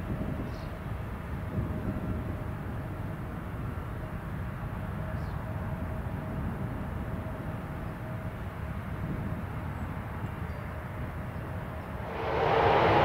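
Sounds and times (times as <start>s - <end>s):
faint jet engine whine: 11.8s - 13.0s
jet engines rumbling: 11.9s - 13.0s.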